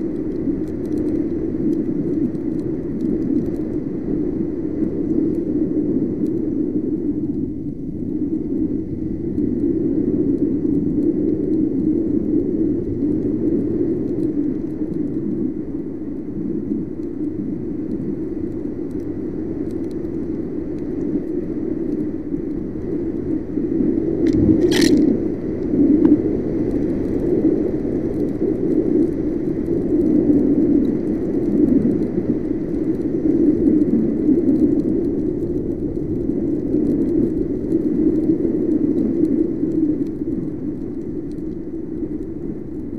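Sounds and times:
wind and road noise: 0:00.0 - 0:42.9
sharp click: 0:24.2 - 0:25.1.

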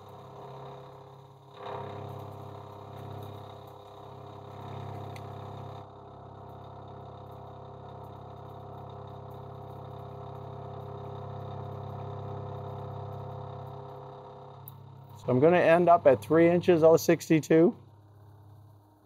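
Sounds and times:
milling machine cutting metal: 0:00.0 - 0:05.8, 0:06.6 - 0:18.0.

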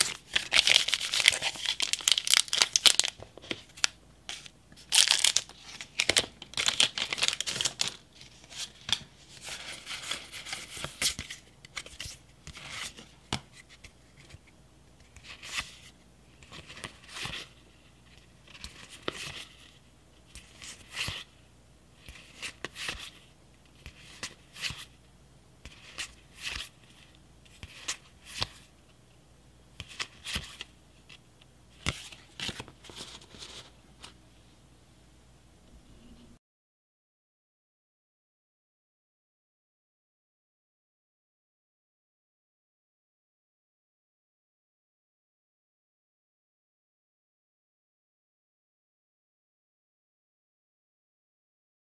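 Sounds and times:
foil wrapper crinkling: 0:00.0 - 0:04.0, 0:04.9 - 0:08.0.

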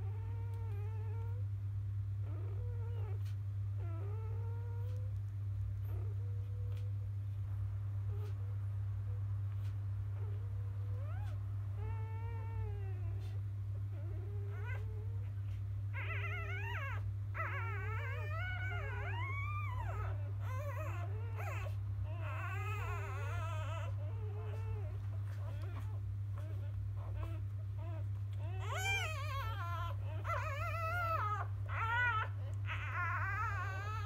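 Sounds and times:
steady low hum: 0:00.0 - 0:34.0
puppies whimpering and squeaking: 0:09.5 - 0:34.0.

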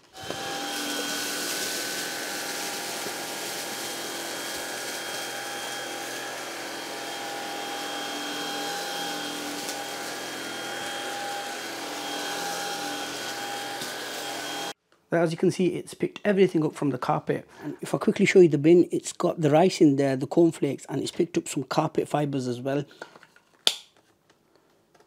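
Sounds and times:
stick vacuum running: 0:00.0 - 0:14.7.

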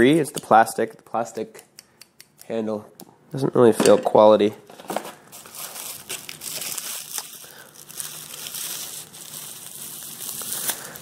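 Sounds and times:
plastic packaging crinkling: 0:04.7 - 0:11.0.

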